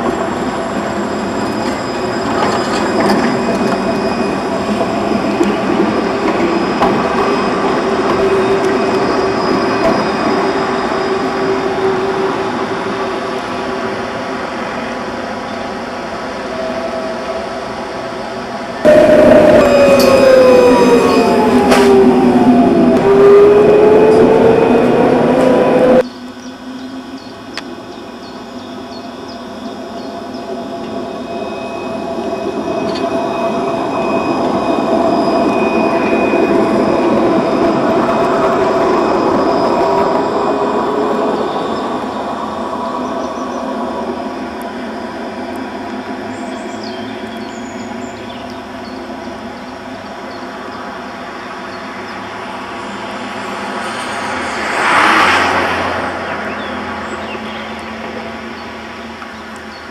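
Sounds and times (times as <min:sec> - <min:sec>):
high wheel squeal: 0:00.0 - 0:26.0, 0:29.4 - 0:48.2
tram motor whine: 0:00.0 - 0:59.9
wheel and rail noise: 0:00.0 - 0:59.9.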